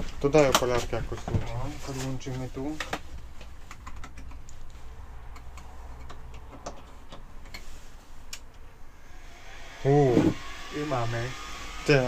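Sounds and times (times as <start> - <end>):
cables and probes clicking: 3.6 - 7.6.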